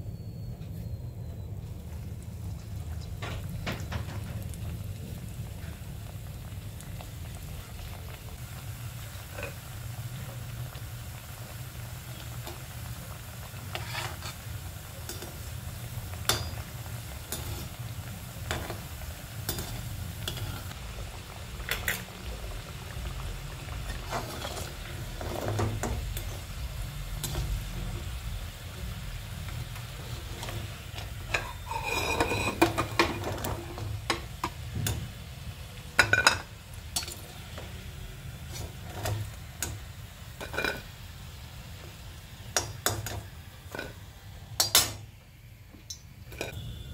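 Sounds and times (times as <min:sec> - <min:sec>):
food sizzling in hot oil: 0:01.6 - 0:46.9
metal spoon scraping a pan: 0:13.5 - 0:15.5, 0:17.2 - 0:17.8, 0:18.4 - 0:20.8, 0:23.9 - 0:27.7, 0:30.0 - 0:34.6, 0:38.4 - 0:39.8, 0:40.4 - 0:40.9, 0:46.3 - 0:46.7.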